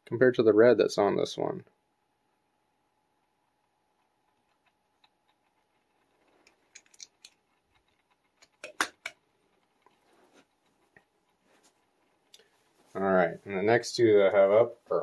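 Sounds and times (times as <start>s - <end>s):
toy cars and packaging clicking: 5.0s - 10.0s.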